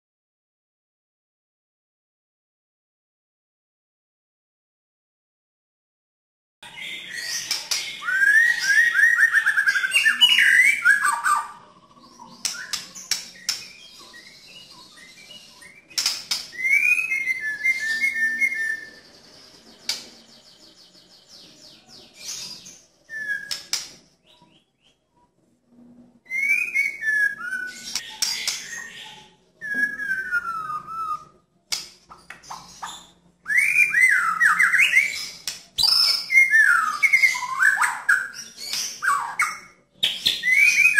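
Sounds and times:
songbird whistling and trilling: 6.6 - 25.0, 26.2 - 31.5, 32.1 - 40.9
sharp clicks: 15.9 - 16.6, 23.5 - 24.0.

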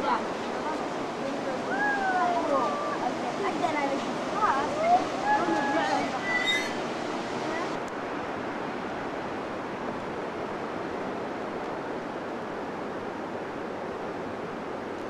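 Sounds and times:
ocean surf breaking: 0.0 - 7.8.

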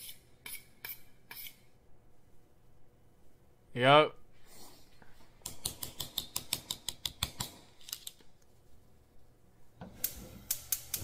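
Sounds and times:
gas stove igniter clicking: 9.9 - 11.0.

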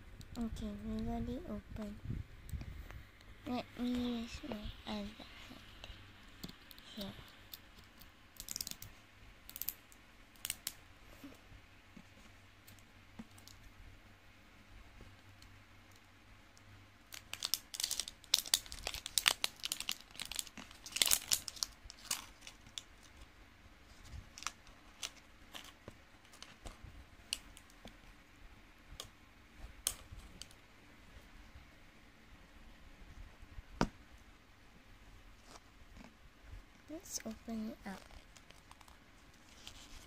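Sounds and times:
crinkly packaging crackling: 3.5 - 11.3, 17.0 - 28.1, 36.8 - 40.0.

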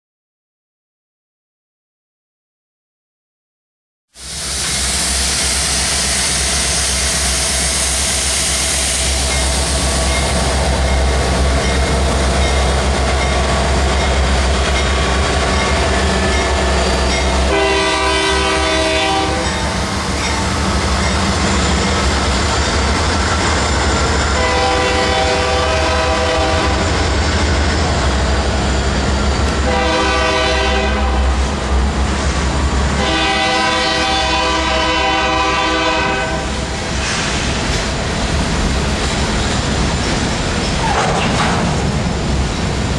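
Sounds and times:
freight train rumble and wheel clatter: 4.2 - 42.9
train horn blasts: 17.2 - 19.8, 24.4 - 27.0, 29.6 - 31.4, 33.0 - 36.7.

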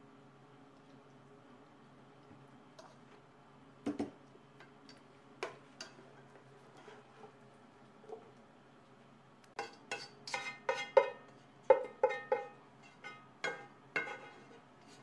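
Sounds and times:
spatula scraping metal wok: 5.8 - 7.4, 12.1 - 15.0.

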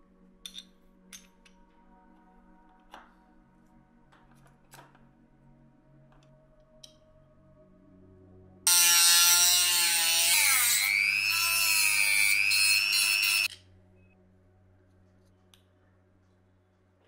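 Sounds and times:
handheld electric tool whirring: 8.7 - 13.5.

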